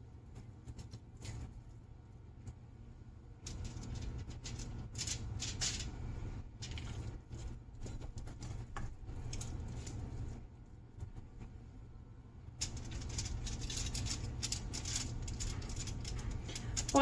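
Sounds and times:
hands working sticky dough: 0.0s - 17.0s
steady low hum: 0.0s - 17.0s.

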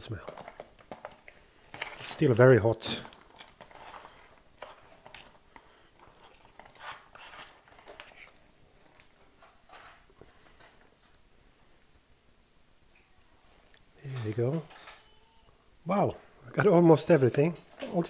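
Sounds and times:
spoon scraping inside pouch: 3.6s - 8.4s.

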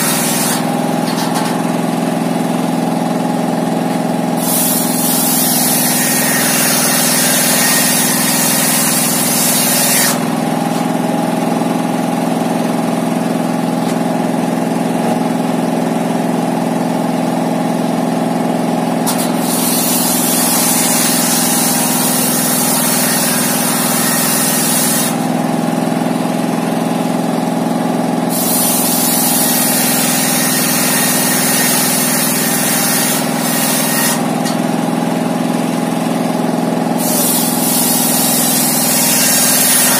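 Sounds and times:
saw blade ripping through timber: 0.0s - 1.9s, 4.3s - 11.0s, 19.0s - 25.4s, 28.3s - 34.8s, 37.0s - 39.9s.

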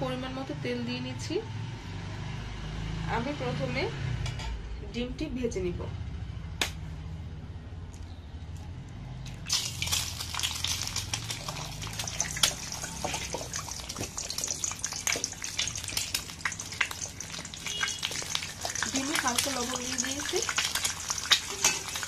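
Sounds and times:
egg sizzling in hot oil: 9.4s - 22.0s.

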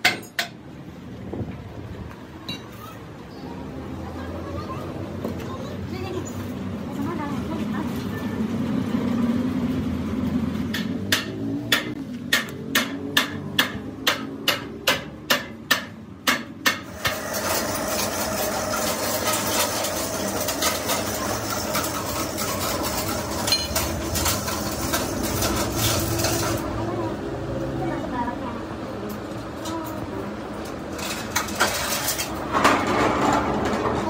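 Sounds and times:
hammer on metal: 0.0s - 0.6s, 10.7s - 17.3s
rapid clatter and scraping: 16.8s - 26.8s, 30.6s - 34.0s.

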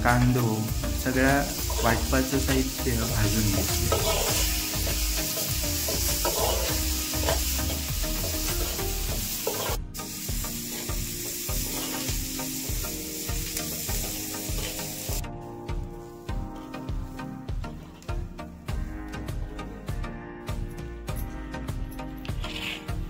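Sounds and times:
food sizzling in pan: 0.0s - 17.3s
soft background music: 0.0s - 23.0s
metal spatula scraping pan: 3.8s - 4.5s, 5.4s - 7.8s.

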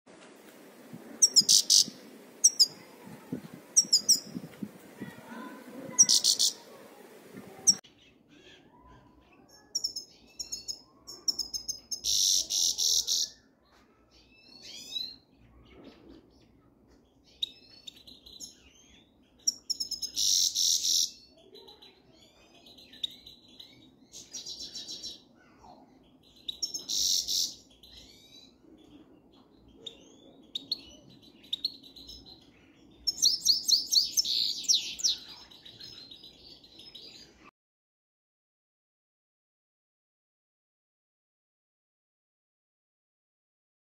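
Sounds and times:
finches chirping and twittering: 1.2s - 3.0s, 3.7s - 6.6s, 7.6s - 13.4s, 14.2s - 25.2s, 25.9s - 37.4s.

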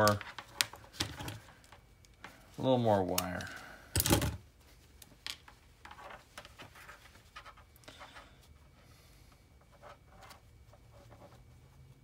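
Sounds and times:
faint rustling: 3.4s - 12.0s.

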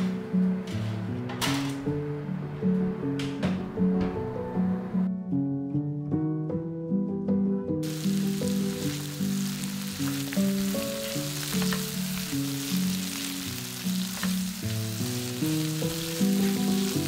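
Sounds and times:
soft plucked background music: 0.0s - 17.0s
vegetables sizzling in frying pan: 7.8s - 17.0s.

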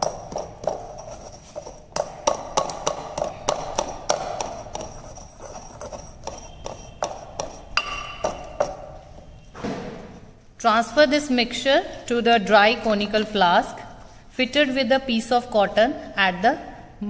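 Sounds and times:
pestle knocking in porcelain mortar: 0.0s - 9.3s.

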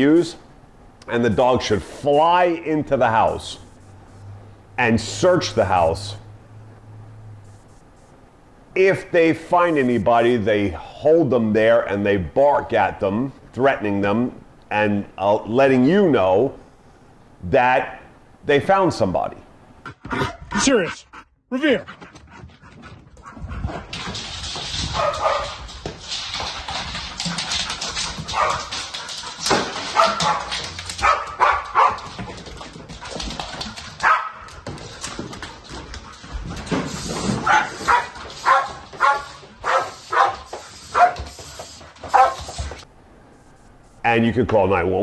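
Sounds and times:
dog barking: 24.9s - 25.6s, 28.3s - 28.7s, 29.9s - 32.1s, 34.0s - 34.5s, 37.4s - 41.3s, 42.1s - 42.5s.

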